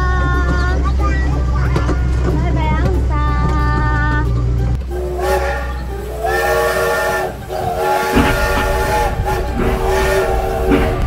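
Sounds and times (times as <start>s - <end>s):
steady low hum: 0.0s - 11.0s
toy train whistle blasts: 4.9s - 11.0s.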